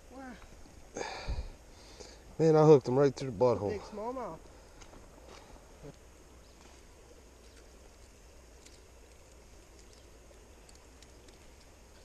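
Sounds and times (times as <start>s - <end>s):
faint high ticks: 7.4s - 12.0s.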